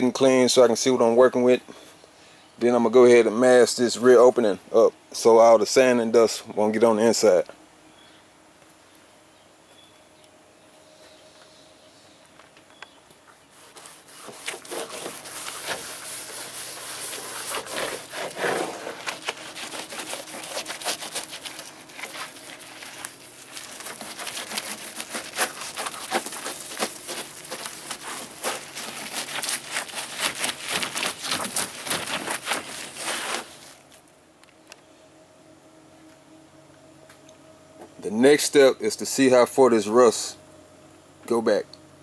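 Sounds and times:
scrubbing pad on metal roof: 13.4 - 34.0.

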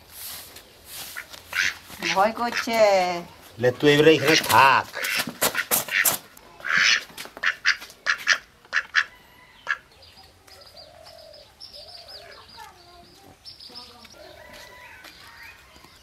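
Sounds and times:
duck quacking: 1.2 - 2.8, 4.2 - 9.1.

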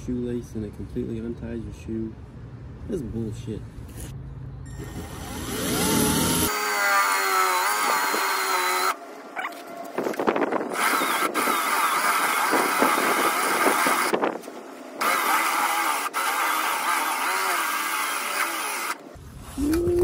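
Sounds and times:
drill bit grinding metal: 4.7 - 9.0, 10.6 - 14.2, 15.0 - 19.1
drill motor whining: 4.7 - 14.3, 15.0 - 19.9.

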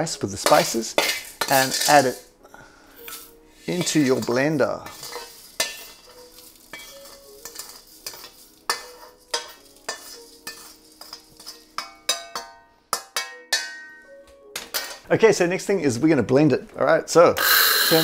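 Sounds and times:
metal utensil scraping in wok: 0.3 - 2.3, 2.9 - 13.8, 17.4 - 18.0
wok ringing: 3.0 - 15.0, 17.4 - 18.0
dry rice rattling: 3.1 - 11.4.

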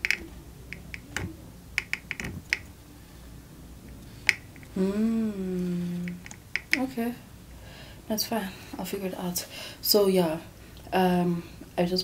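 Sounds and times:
woman humming: 4.7 - 6.3.

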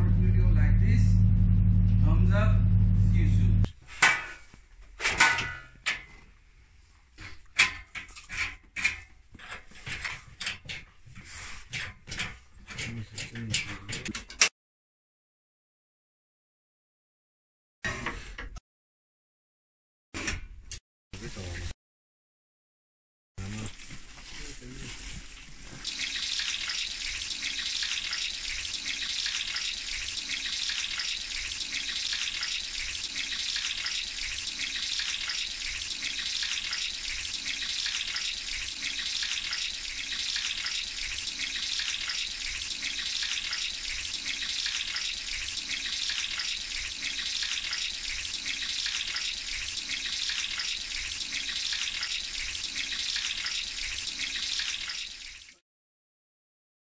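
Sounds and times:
hot oil sizzling: 24.6 - 55.6.

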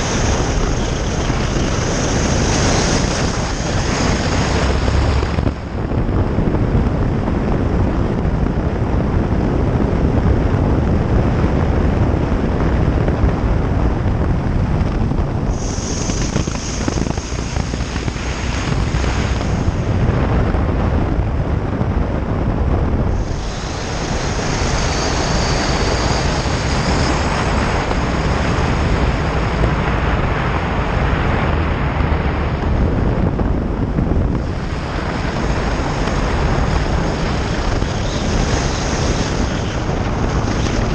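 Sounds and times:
wind noise on microphone: 0.0 - 40.9
motorcycle engine: 13.3 - 22.1.

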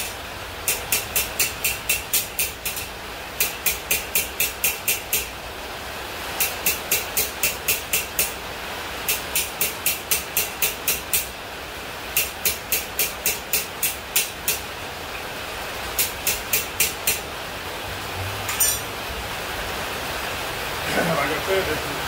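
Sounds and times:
hammer tapping steel on anvil: 0.0 - 5.3, 6.4 - 8.4, 9.1 - 11.3, 12.2 - 14.6, 16.0 - 17.2, 18.5 - 18.9
metal clank: 18.5 - 18.9.

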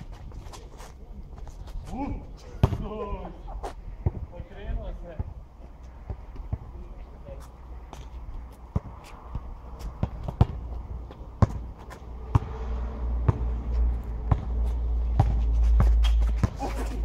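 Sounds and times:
basketball bouncing on asphalt: 2.6 - 3.0, 4.0 - 17.0.

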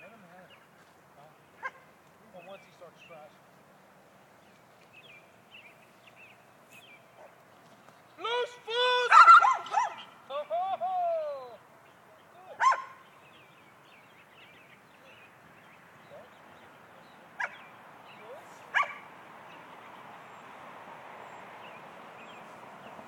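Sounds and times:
dog barking: 1.6 - 1.9, 7.2 - 7.4, 9.1 - 10.1, 12.6 - 13.0, 17.4 - 17.6, 18.7 - 19.1.

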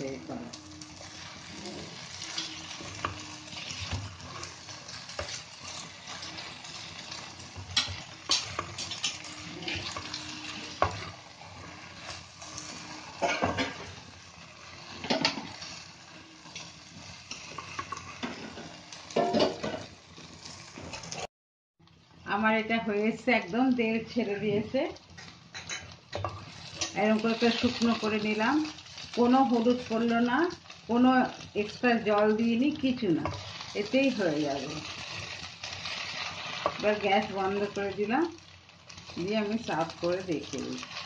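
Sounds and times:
food sizzling in oil: 0.0 - 21.3, 22.2 - 41.0
spatula scraping pan: 0.5 - 21.3, 32.8 - 37.8, 38.9 - 41.0.

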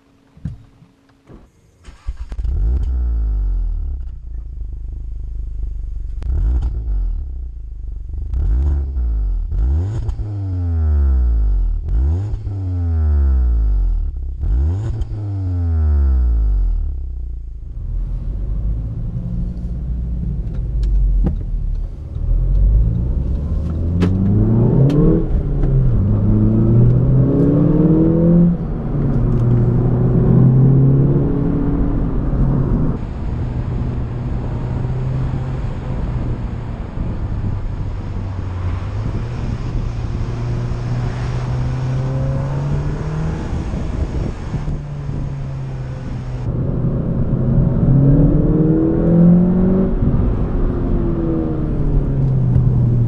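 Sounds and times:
car engine revving: 1.8 - 53.0
car accelerating through gears: 22.0 - 53.0.

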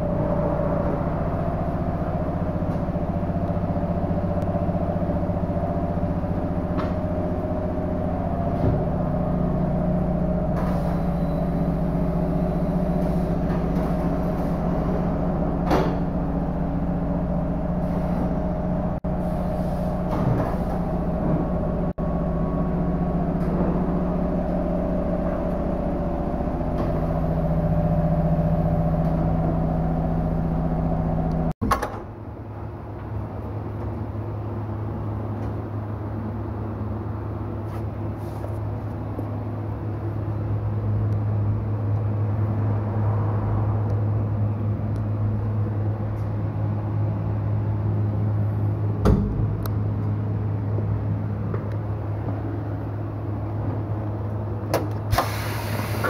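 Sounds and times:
mechanical drone: 0.0 - 31.5.

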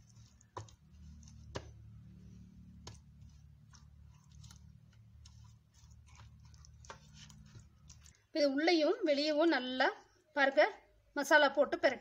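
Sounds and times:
hands squishing paste into fish: 0.0 - 8.3.

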